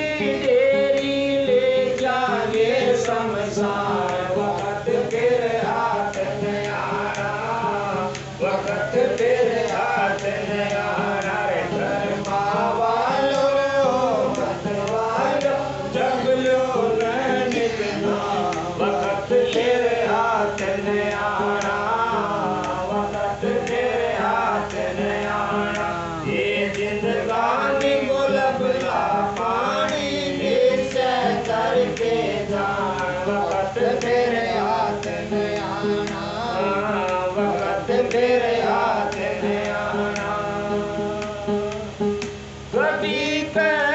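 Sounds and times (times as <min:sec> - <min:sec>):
held accompaniment tones: 0:00.0 - 0:43.9
men singing a devotional hymn: 0:00.0 - 0:43.9.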